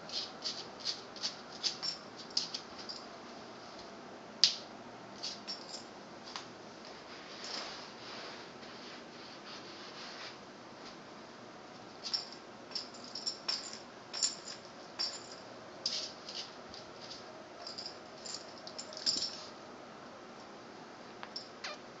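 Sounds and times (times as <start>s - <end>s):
dog claws scratching on tile: 0.0s - 3.0s, 5.2s - 5.7s, 15.0s - 17.2s.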